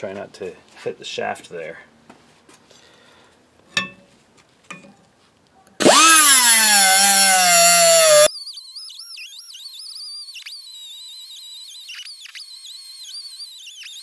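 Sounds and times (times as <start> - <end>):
angle grinder cutting metal: 5.8 - 8.3.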